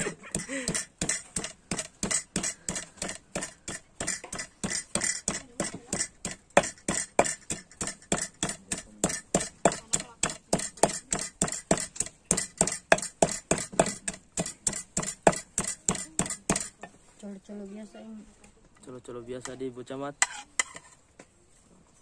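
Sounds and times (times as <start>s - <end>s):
knife chopping on cutting board: 0.0s - 16.9s.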